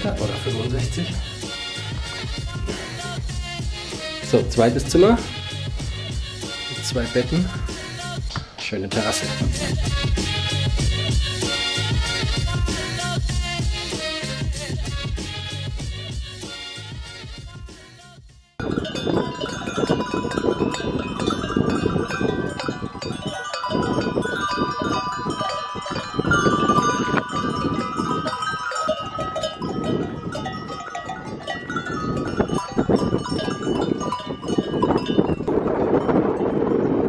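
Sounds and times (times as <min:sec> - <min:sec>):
goat bells clanking and jingling: 0:18.6 - 0:36.9.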